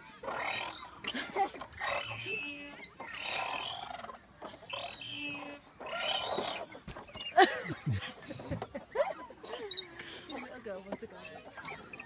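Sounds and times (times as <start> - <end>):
playground swing creaking and squealing: 0.0 - 12.0.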